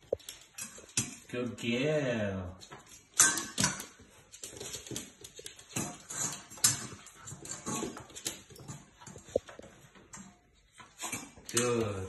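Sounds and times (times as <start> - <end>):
puppy claws tapping on floor: 2.6 - 10.3.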